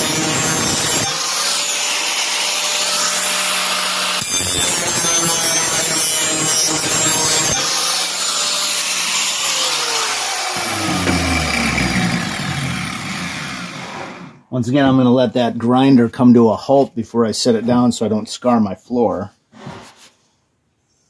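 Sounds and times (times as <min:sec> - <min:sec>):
angle grinder motor whine: 0:00.0 - 0:14.4
grinding wheel rasping on steel: 0:00.0 - 0:14.4.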